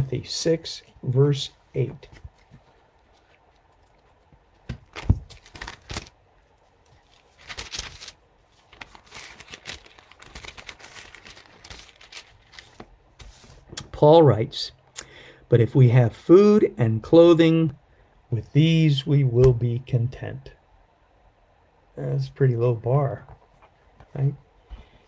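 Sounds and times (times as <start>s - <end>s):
pages rustling: 2.0s - 13.9s.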